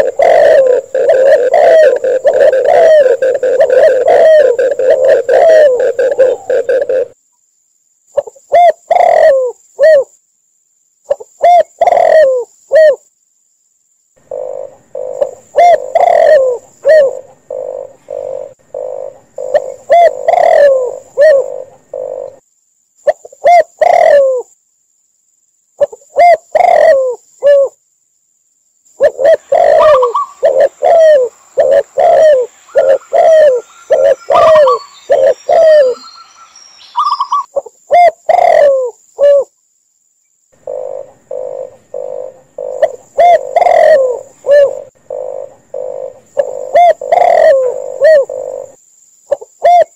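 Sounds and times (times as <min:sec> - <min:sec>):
doves cooing: 0:00.0 - 0:07.2, 0:08.2 - 0:10.1, 0:11.1 - 0:13.0, 0:14.2 - 0:22.4, 0:23.1 - 0:24.5, 0:25.8 - 0:27.8, 0:29.0 - 0:36.2, 0:37.0 - 0:39.5, 0:40.6 - 0:49.9
higher bird notes: 0:00.0 - 0:07.2, 0:29.0 - 0:39.4.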